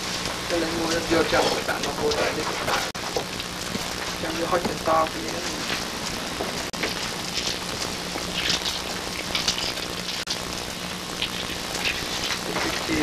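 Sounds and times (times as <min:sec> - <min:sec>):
tape hiss: 0:00.0 - 0:13.0.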